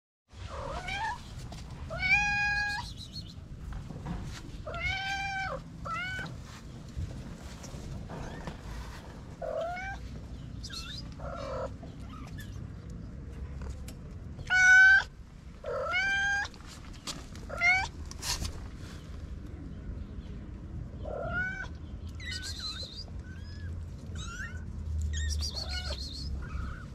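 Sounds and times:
kittens mewing: 10.8 - 12.6, 21.0 - 26.9.

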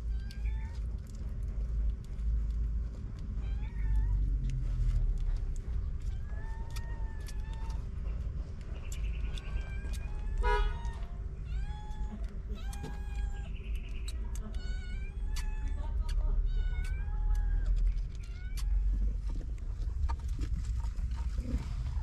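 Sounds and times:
steady low rumble: 0.0 - 22.0
kittens mewing: 9.3 - 19.1.

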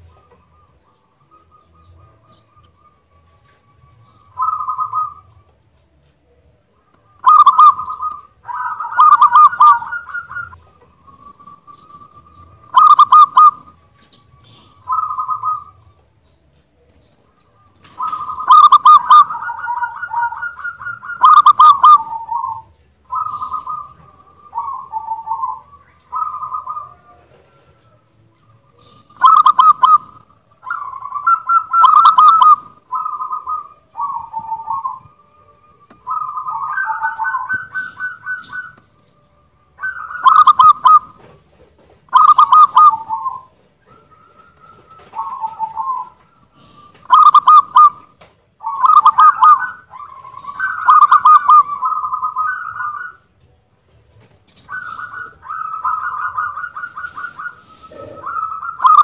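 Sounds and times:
dove cooing in trilled phrases: 4.2 - 5.5, 7.1 - 15.9, 17.7 - 38.8, 39.7 - 53.4, 54.6 - 59.0.

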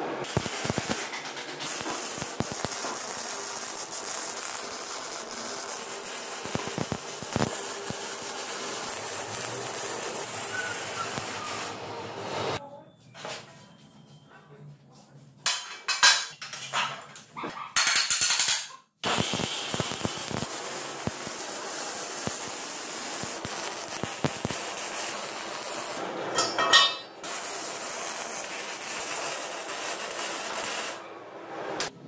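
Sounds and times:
arc welding crackling hiss: 0.2 - 12.6, 19.0 - 26.0, 27.2 - 31.0.

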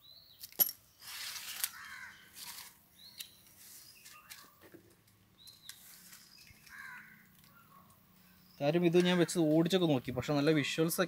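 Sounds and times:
birds chirping: 1.6 - 11.0.

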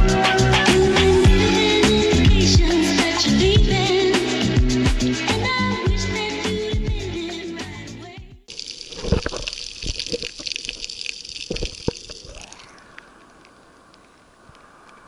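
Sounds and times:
sharp knocks and splashes: 8.5 - 12.7
water sloshing and gurgling: 8.5 - 15.0
soft hiss: 8.6 - 15.0.

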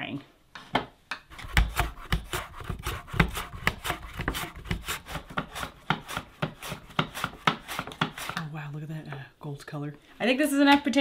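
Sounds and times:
potato rasping on slicer blade: 1.3 - 8.4.

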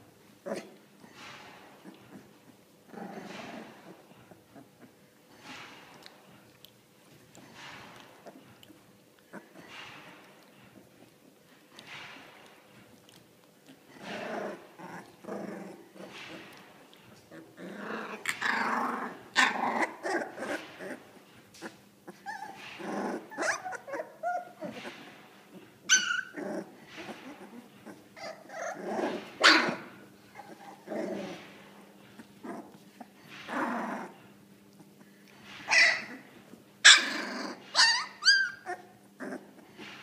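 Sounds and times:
puppies vocalising: 7.4 - 11.4, 12.8 - 40.0
puppy high sliding cries: 37.7 - 38.8.

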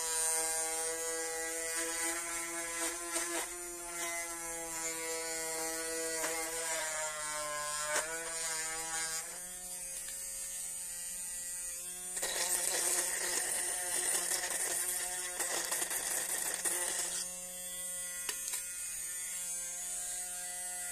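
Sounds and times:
electric drill motor whining: 0.0 - 20.6
drill bit grinding into plastic: 1.4 - 10.3, 12.1 - 17.4, 18.2 - 18.7.

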